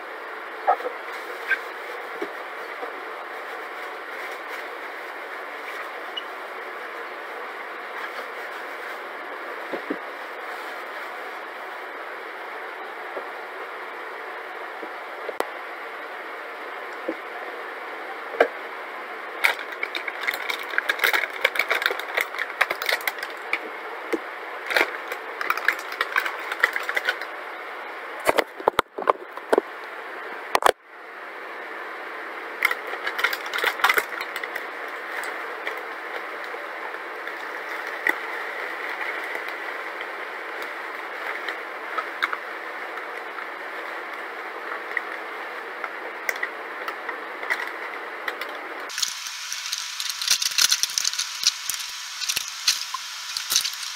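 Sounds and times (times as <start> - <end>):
scissors cutting plastic: 19.4 - 23.5, 48.4 - 53.9
plastic bag crinkling: 19.4 - 23.6, 24.6 - 27.3, 32.7 - 35.8, 48.4 - 53.9
oats pouring into container: 48.9 - 53.9.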